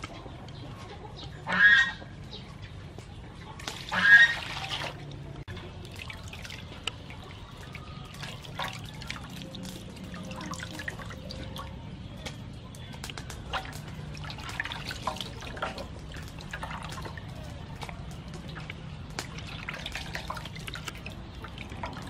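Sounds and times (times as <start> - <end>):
water splashes and drips: 3.5 - 22.0.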